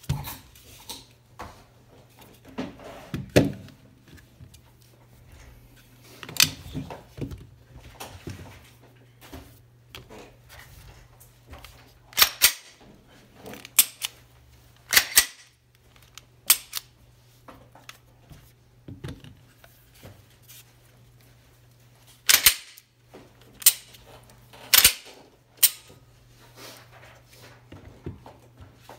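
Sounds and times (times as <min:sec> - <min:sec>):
pistol slides racking: 0:12.2 - 0:12.8, 0:13.6 - 0:14.2, 0:14.9 - 0:15.5, 0:16.5 - 0:16.9, 0:22.3 - 0:22.8, 0:23.6 - 0:24.0, 0:24.7 - 0:25.9.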